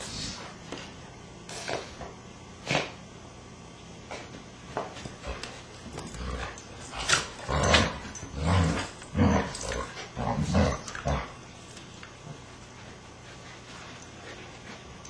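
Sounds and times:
dogs growling: 0:06.0 - 0:11.5.

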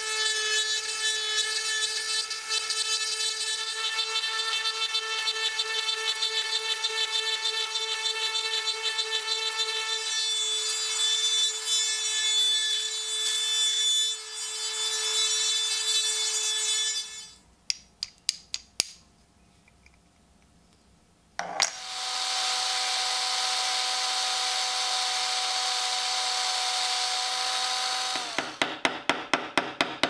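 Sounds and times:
rotary tool whining: 0:21.4 - 0:28.6.

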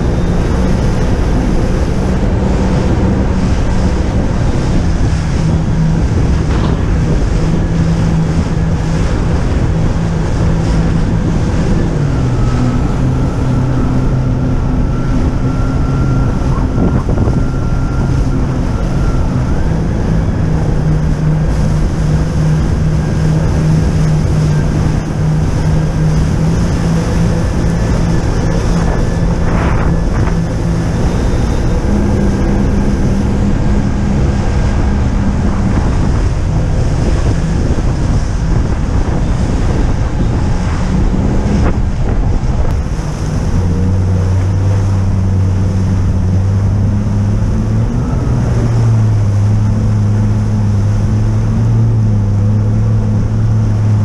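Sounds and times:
jet ski engine running: 0:00.0 - 0:54.0
water rushing: 0:00.0 - 0:54.0
wind buffeting microphone: 0:00.0 - 0:54.0.

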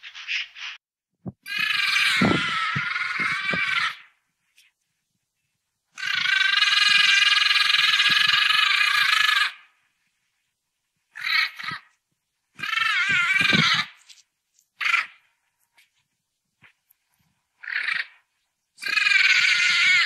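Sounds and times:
animal calling: 0:01.4 - 0:04.2, 0:05.9 - 0:09.7, 0:11.1 - 0:12.0, 0:12.6 - 0:14.2, 0:14.8 - 0:15.4, 0:17.6 - 0:20.0.

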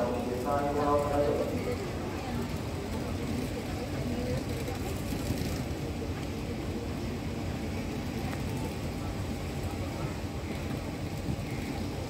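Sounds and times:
diesel locomotive idling: 0:00.0 - 0:04.5
faint voices: 0:00.0 - 0:12.0.

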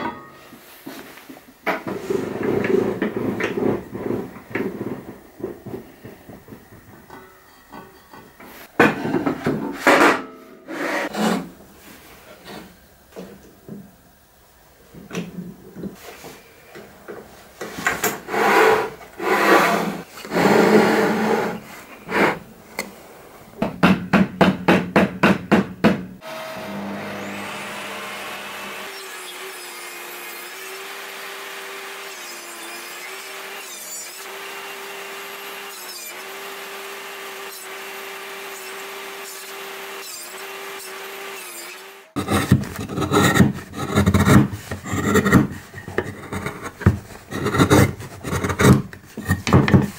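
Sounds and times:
wood scraping on steel table: 0:01.8 - 0:07.3, 0:07.9 - 0:11.5, 0:17.6 - 0:22.4, 0:42.2 - 0:49.9.

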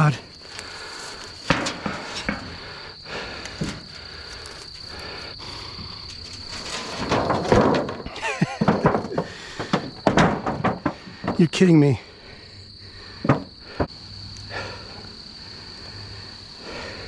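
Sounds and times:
high insect trill: 0:00.0 - 0:17.0
metal sheet knocks and scrapes: 0:01.4 - 0:02.6, 0:06.1 - 0:11.5, 0:13.2 - 0:13.5
rustling in grass and straw: 0:03.4 - 0:07.0.

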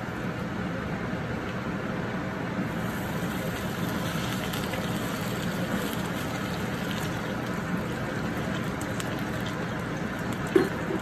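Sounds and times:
fan humming: 0:00.0 - 0:11.0
fries sizzling in hot oil: 0:02.6 - 0:11.0.

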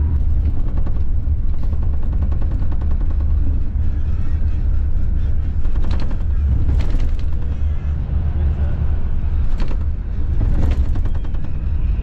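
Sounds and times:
coach engine and road rumble: 0:00.0 - 0:12.0
cabin rattles: 0:05.6 - 0:07.6, 0:09.4 - 0:11.7.

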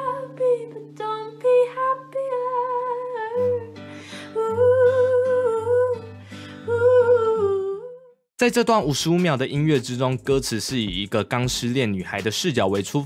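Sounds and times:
acoustic guitar: 0:00.0 - 0:08.0
woman singing: 0:00.0 - 0:08.2.

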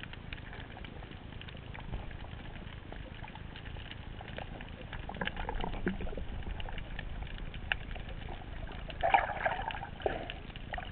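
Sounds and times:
crackling clicks: 0:00.0 - 0:10.9
muffled underwater rumble: 0:00.0 - 0:10.9
bubbling burst: 0:09.0 - 0:10.9.

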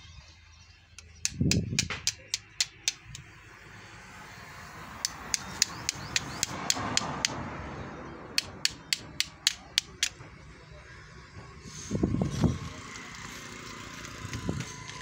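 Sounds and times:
sharp taps: 0:01.0 - 0:03.3, 0:05.0 - 0:07.4, 0:08.4 - 0:10.3.

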